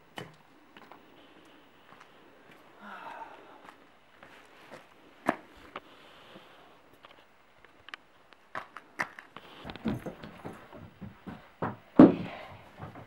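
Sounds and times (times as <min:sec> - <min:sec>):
dull thumps: 0:09.7 - 0:13.0.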